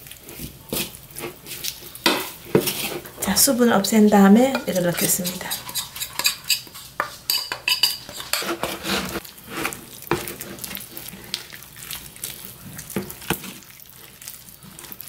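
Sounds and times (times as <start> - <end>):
metal utensil scraping glass bowl: 4.4 - 10.3.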